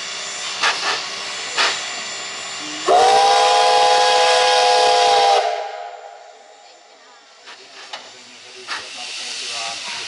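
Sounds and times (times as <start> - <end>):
steam puffs: 0.0 - 5.9, 7.3 - 10.0
steam hissing: 0.0 - 6.4, 7.2 - 10.0
steam whistle chord: 2.8 - 6.6.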